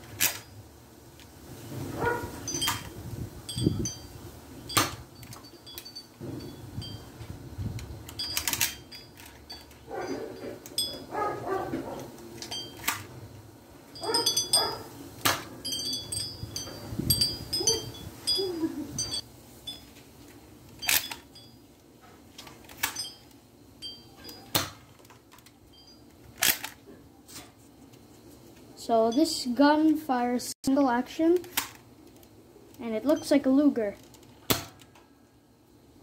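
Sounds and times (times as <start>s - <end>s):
toy dart blaster clicks and snaps: 31.3s - 31.8s, 34.5s - 35.0s.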